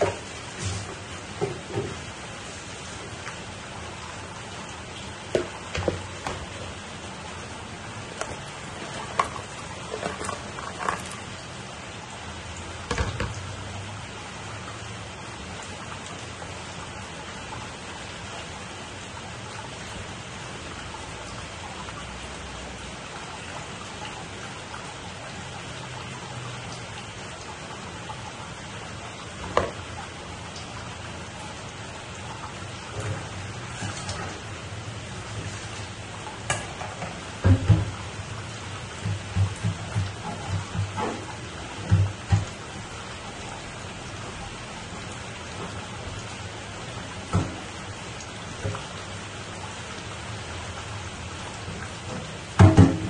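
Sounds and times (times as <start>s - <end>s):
broth boiling: 0.0s - 53.0s.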